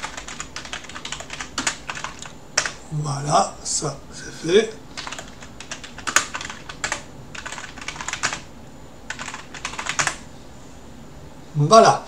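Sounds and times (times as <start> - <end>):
typing on keyboard: 0.0 - 2.8, 5.0 - 8.5, 9.1 - 10.2.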